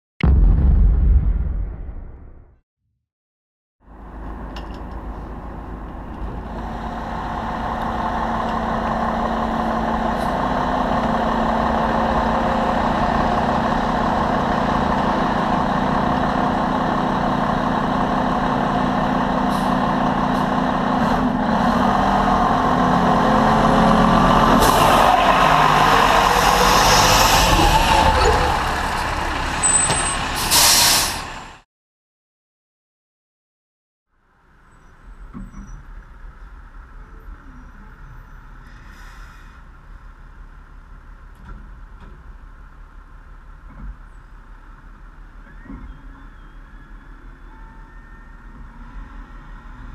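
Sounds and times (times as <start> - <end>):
diesel engine revving: 5.7 - 31.6
air brake hisses: 30.4 - 31.3, 38.6 - 39.7.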